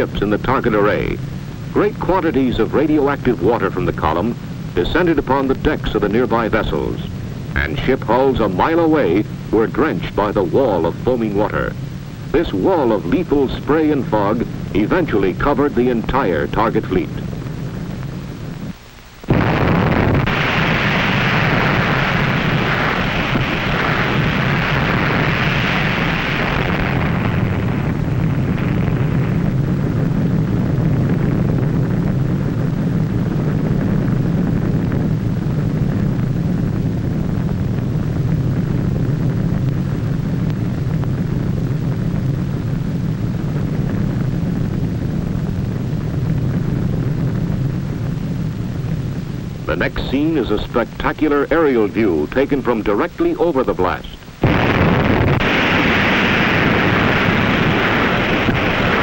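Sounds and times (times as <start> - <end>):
low rumble: 0.0 - 53.1, 53.9 - 59.0
explosion roar: 19.3 - 31.6, 54.4 - 59.0.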